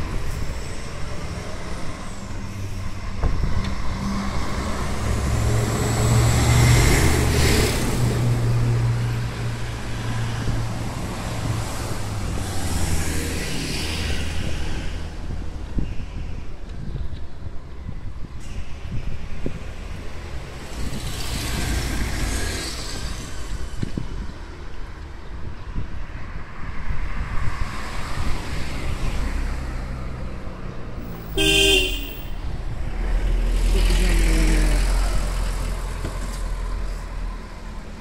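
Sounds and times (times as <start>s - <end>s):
low traffic rumble: 0.0s - 38.0s
vehicles passing: 0.0s - 38.0s
short car horn toot: 31.4s - 32.3s.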